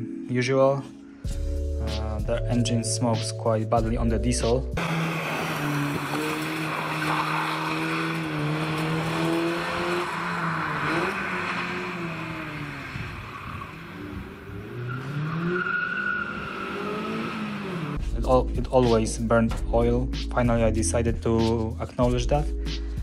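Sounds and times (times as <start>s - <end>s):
car engine revving: 4.8s - 18.0s.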